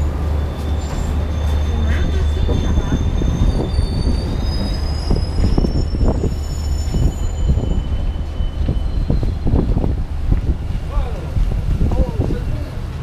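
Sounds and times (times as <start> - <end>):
train wheels squealing on rails: 0.0 - 10.2
steady low rumble: 0.0 - 13.0.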